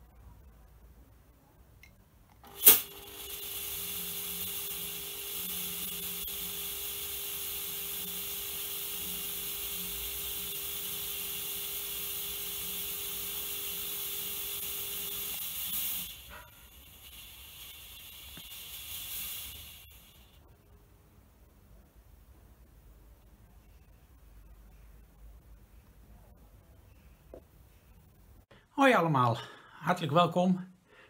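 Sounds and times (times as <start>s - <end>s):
steady hum: 0.0s - 28.7s
fog machine hissing: 2.4s - 20.5s.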